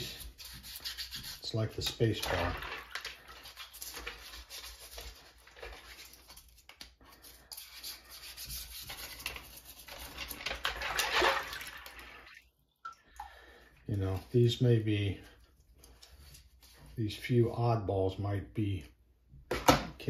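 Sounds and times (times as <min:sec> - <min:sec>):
toothbrush scrubbing plastic: 0:00.0 - 0:11.2
water sloshing: 0:10.6 - 0:13.5.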